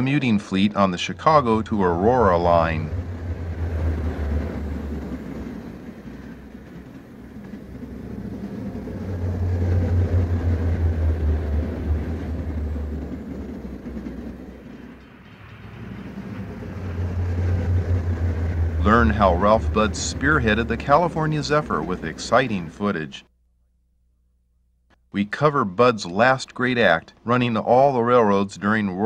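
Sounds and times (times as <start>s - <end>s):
train rumbling over rails: 0.0s - 23.2s.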